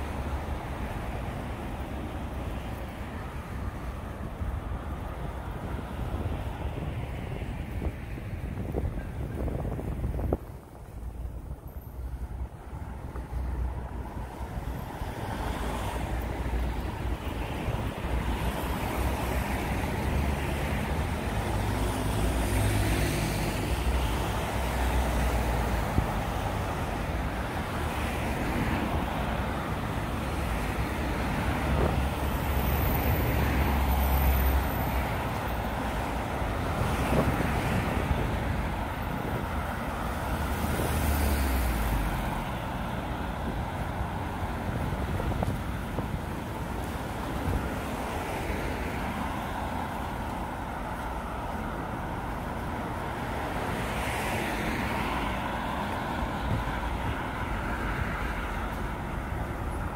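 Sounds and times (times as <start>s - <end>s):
vehicles driving past: 0.0s - 59.9s.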